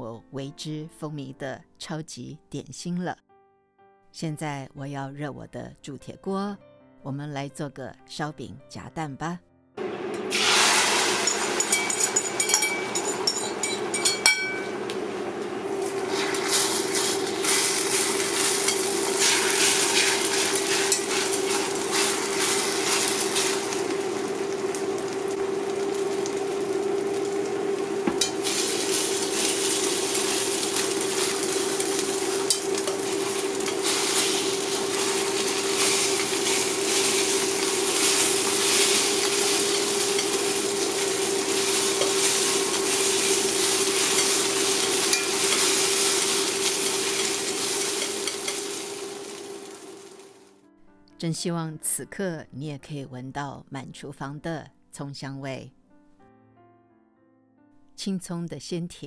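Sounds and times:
egg sizzling in hot oil: 9.8 - 50.5.

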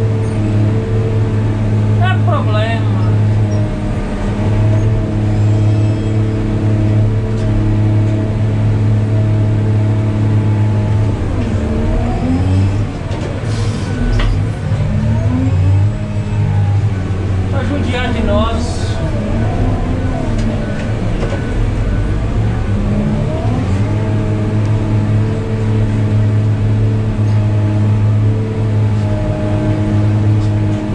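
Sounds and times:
diesel engine running: 0.0 - 30.9.

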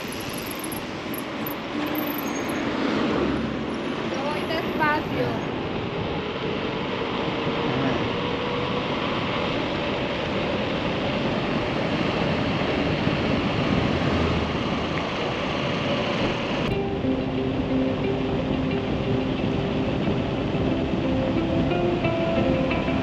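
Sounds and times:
bicycle tyres on asphalt: 0.0 - 16.8
wind rushing over microphone: 0.0 - 23.0.

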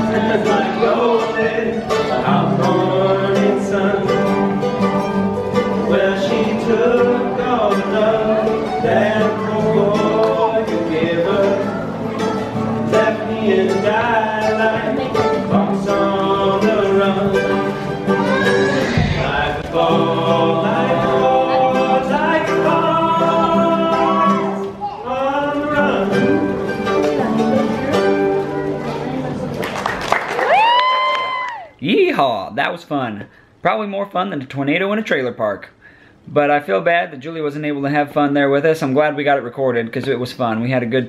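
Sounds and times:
men singing: 0.0 - 4.9, 5.6 - 26.9
mandolin: 0.0 - 29.7
acoustic guitar: 0.0 - 41.0.

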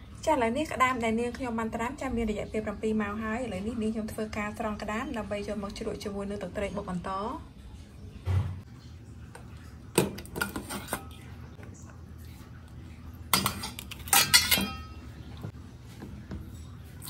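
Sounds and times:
metal spoon clinking and scraping: 13.3 - 15.0.

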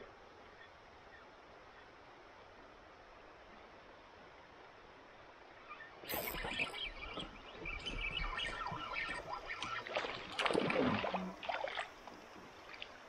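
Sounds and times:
water splashing: 6.0 - 13.0.

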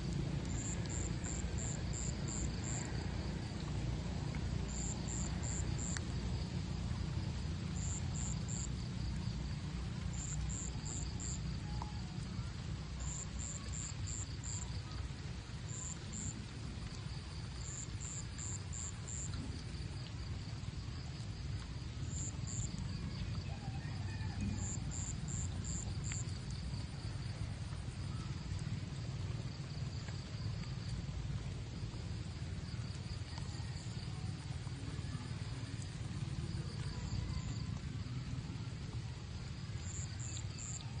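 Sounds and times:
insect chirping: 0.4 - 3.0, 20.7 - 23.6, 24.4 - 28.8, 36.8 - 37.6, 39.5 - 40.9.

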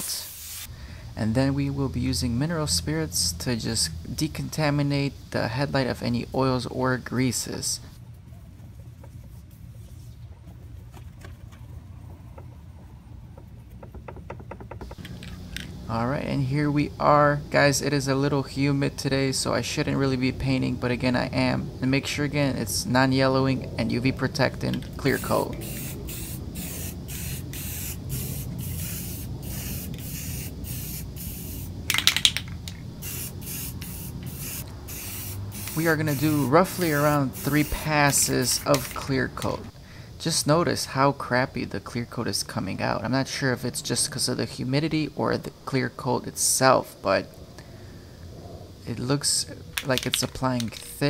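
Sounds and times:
aerosol spray hissing: 0.0 - 0.7, 25.0 - 31.9, 32.9 - 39.5
steady low hum: 0.6 - 51.0.

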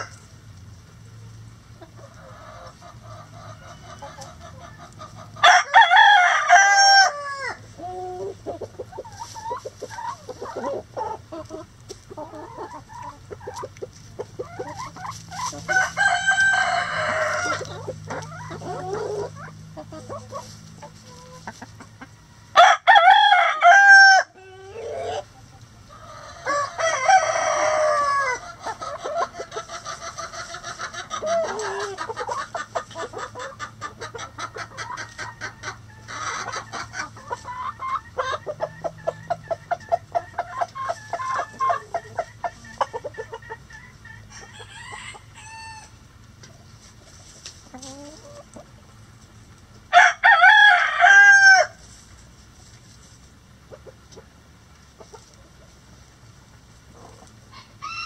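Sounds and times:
chickens clucking: 0.0 - 58.0
rooster crowing: 5.4 - 7.6, 15.6 - 17.9, 22.5 - 25.2, 26.1 - 28.4, 44.2 - 46.0, 49.9 - 51.8, 57.5 - 58.0.

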